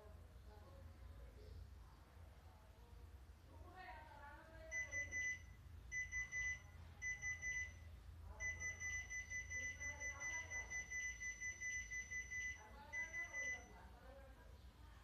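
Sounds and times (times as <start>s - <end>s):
piezo buzzer beeping high tone: 4.8s - 7.8s, 8.4s - 13.7s.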